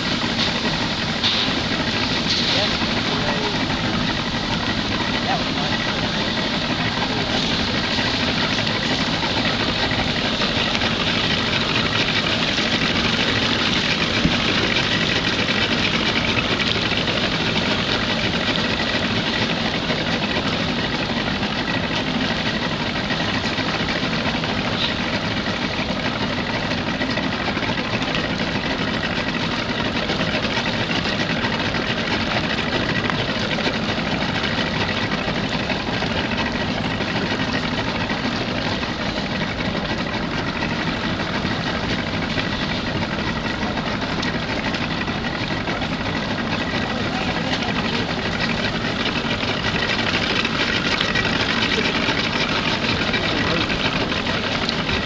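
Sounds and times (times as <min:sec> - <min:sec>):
engine droning: 0:00.0 - 0:55.0.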